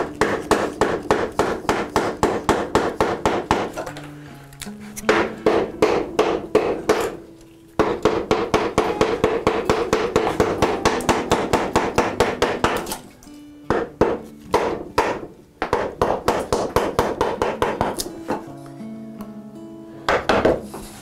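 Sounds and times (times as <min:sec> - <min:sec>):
mallet tapping chisel into wood: 0:00.2 - 0:03.7, 0:05.1 - 0:07.2, 0:07.8 - 0:13.0, 0:13.7 - 0:18.4.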